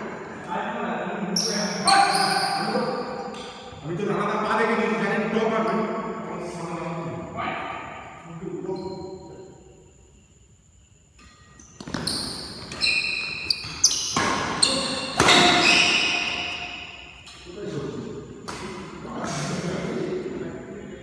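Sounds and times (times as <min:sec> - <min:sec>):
shoes squeaking on court floor: 0:01.4 - 0:03.8, 0:11.2 - 0:17.5
racket striking shuttlecock: 0:13.8 - 0:17.2.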